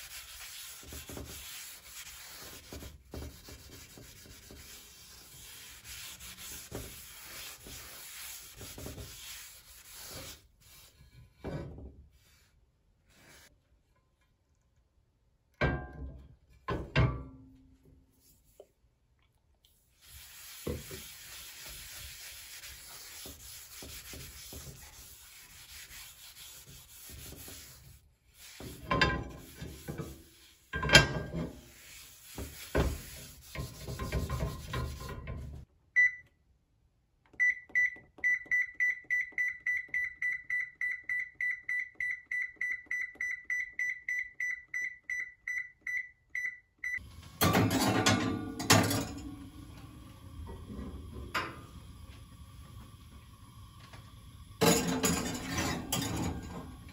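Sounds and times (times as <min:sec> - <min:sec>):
rubbing or scrubbing: 0:00.0 - 0:11.2, 0:19.8 - 0:35.4.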